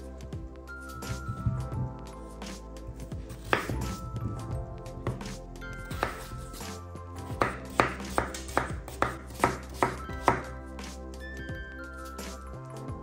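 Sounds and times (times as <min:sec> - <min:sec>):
background music: 0:00.0 - 0:13.0
knife chopping on cutting board: 0:03.4 - 0:04.0, 0:05.9 - 0:06.5, 0:07.4 - 0:10.5.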